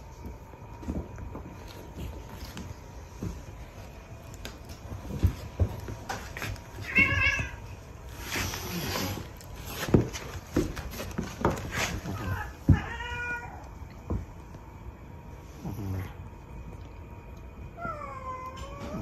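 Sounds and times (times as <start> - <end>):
cat meowing: 6.8 - 7.7, 12.1 - 13.7.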